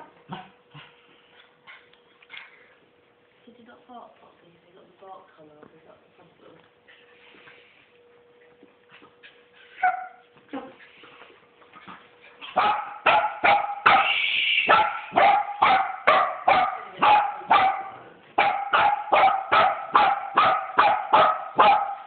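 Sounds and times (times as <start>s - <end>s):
dog play-barking: 9.7s - 10.3s, 12.4s - 22.0s
dog yelping: 12.6s - 17.8s.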